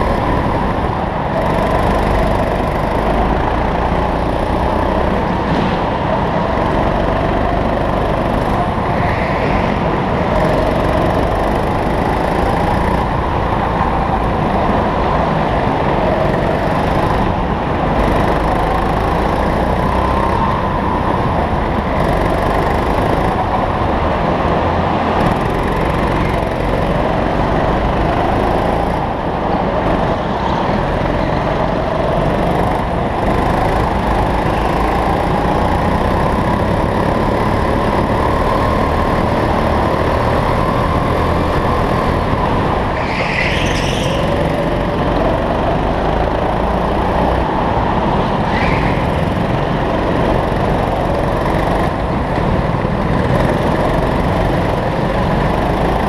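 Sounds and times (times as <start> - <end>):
go-kart engine running hard: 0.0 - 56.0
high-pitched tyre squeal: 40.5 - 44.9, 48.4 - 49.3.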